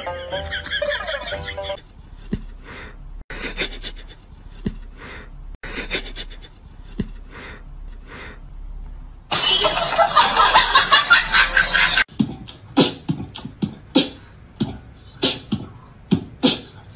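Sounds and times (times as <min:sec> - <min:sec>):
person snickering: 0:01.2 - 0:07.3.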